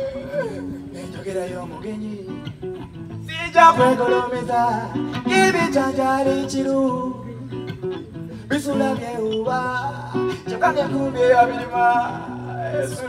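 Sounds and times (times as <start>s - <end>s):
person singing: 0.0s - 2.5s, 8.4s - 13.0s
fingerstyle acoustic guitar: 0.0s - 13.0s.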